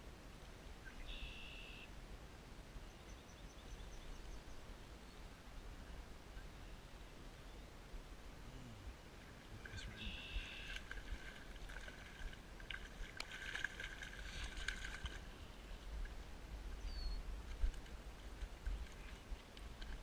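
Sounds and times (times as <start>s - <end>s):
fish splashing in water: 10.4s - 15.4s.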